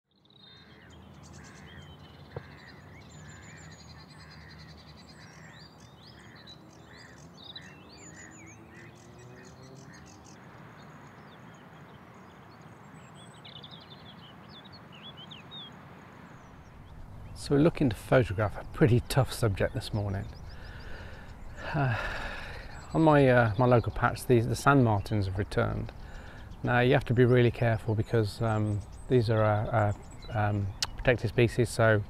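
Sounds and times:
birds calling and chirping: 0:00.1 - 0:32.0
short bird calls: 0:00.2 - 0:17.4, 0:19.9 - 0:23.7, 0:25.6 - 0:26.7.

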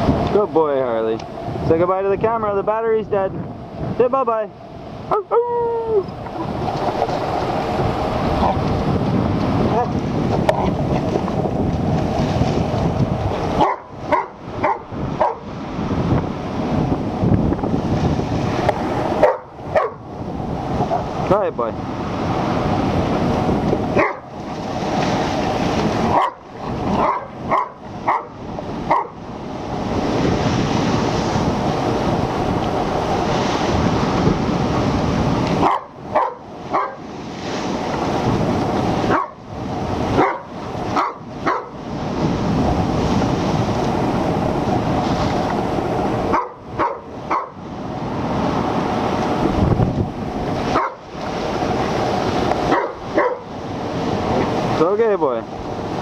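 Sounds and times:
surf breaking: 0:00.0 - 0:56.0
wind rushing: 0:00.0 - 0:56.0
dog barking: 0:13.6 - 0:15.5, 0:19.2 - 0:20.0, 0:24.0 - 0:24.3, 0:26.1 - 0:29.2, 0:35.6 - 0:37.1, 0:39.1 - 0:39.4, 0:40.2 - 0:41.8, 0:46.3 - 0:47.6, 0:50.7 - 0:51.0, 0:52.7 - 0:53.5.

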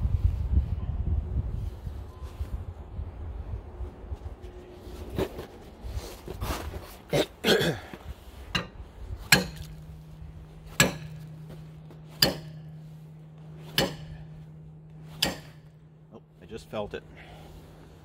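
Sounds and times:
low metallic hum: 0:00.0 - 0:18.0
hammer striking metal: 0:08.5 - 0:09.8, 0:10.6 - 0:11.4, 0:12.1 - 0:12.9, 0:13.6 - 0:15.8.

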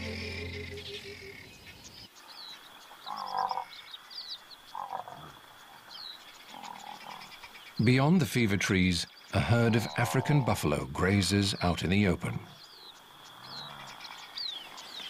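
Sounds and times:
background music: 0:00.0 - 0:01.4
birds chirping: 0:00.0 - 0:04.9, 0:05.6 - 0:15.0
frogs croaking: 0:00.0 - 0:07.8, 0:09.0 - 0:15.0.

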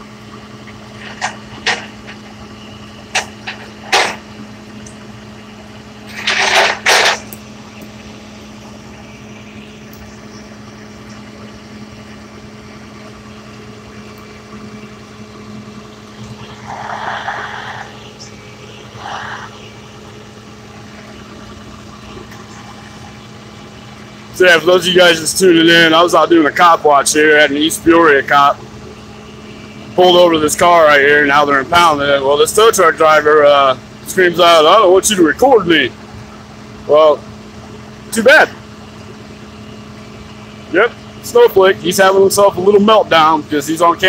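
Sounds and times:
vehicle engine idling: 0:00.0 - 0:44.0
sharp knocks or clanks: 0:03.1 - 0:04.2.

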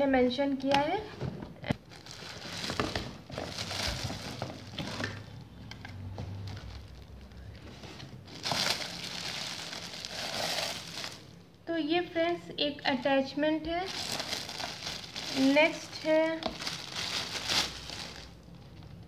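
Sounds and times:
plastic wrapping crinkling: 0:01.6 - 0:05.4, 0:06.3 - 0:11.5, 0:13.7 - 0:19.0.

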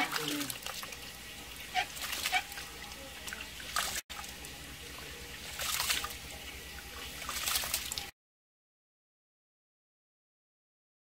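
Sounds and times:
rice being washed in water: 0:00.0 - 0:08.1.

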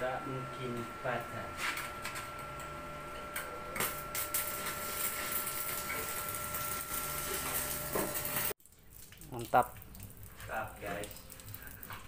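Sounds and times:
welding arc crackling hiss: 0:03.7 - 0:08.6.

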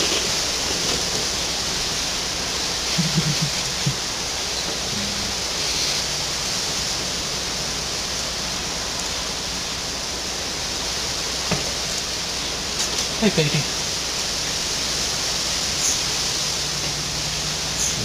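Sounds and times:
background hiss: 0:00.0 - 0:18.0
faint low sounds: 0:02.8 - 0:05.6.

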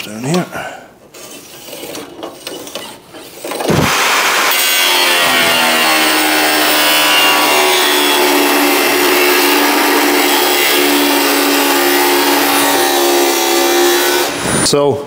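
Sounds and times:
angle grinder cutting steel: 0:01.2 - 0:14.5.

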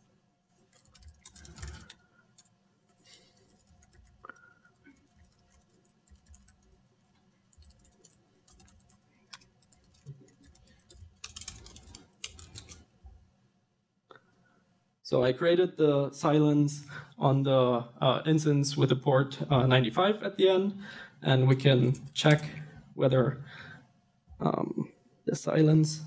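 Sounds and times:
laptop keyboard typing: 0:00.6 - 0:12.8.

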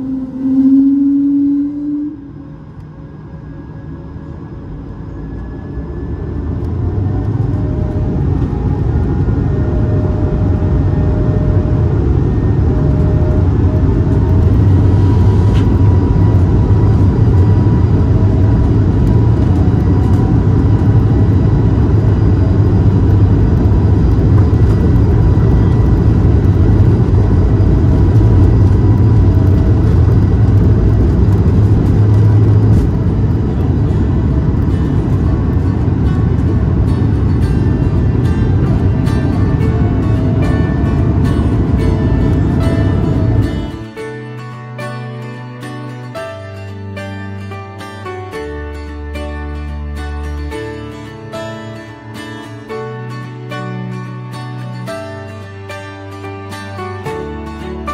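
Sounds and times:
jet engines rumbling: 0:00.0 - 0:44.2.

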